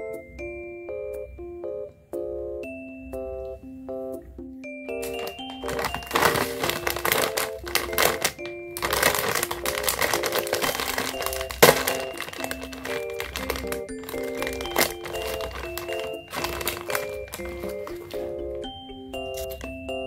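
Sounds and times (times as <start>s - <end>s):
light background melody: 0.0s - 20.0s
plastic snack bag crinkling: 5.0s - 18.4s.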